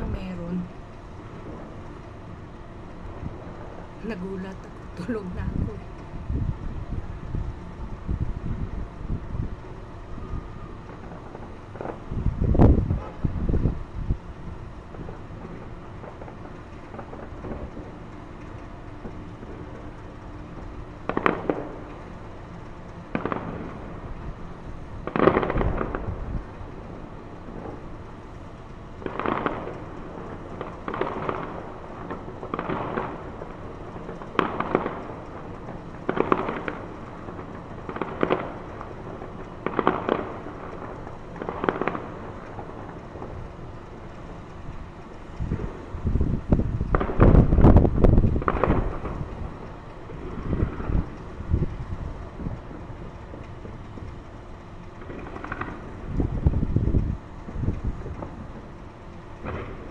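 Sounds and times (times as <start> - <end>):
wind on microphone: 4.0 - 10.7, 12.0 - 14.7, 44.6 - 49.6, 50.2 - 52.8, 56.0 - 58.6.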